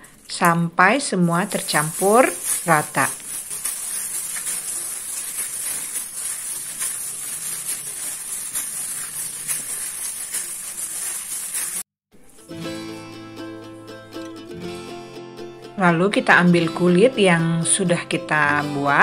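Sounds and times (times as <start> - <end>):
plastic glove crinkling: 0.1 - 11.9
wet squishing of minced meat: 1.4 - 11.9.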